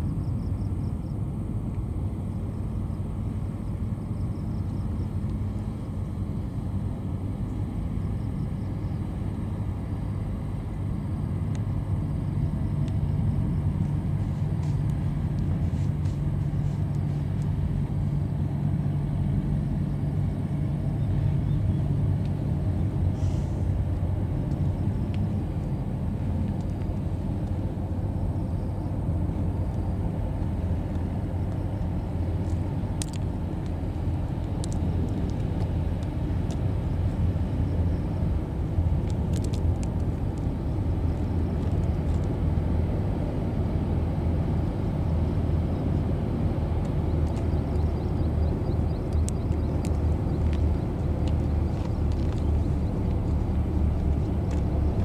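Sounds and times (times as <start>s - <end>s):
ferry diesel engines droning: 0.0s - 55.0s.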